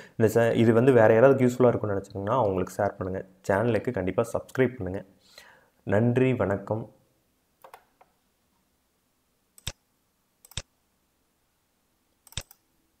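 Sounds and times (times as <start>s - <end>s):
computer mouse clicks: 9.6s - 9.8s, 10.4s - 10.7s, 12.2s - 12.6s.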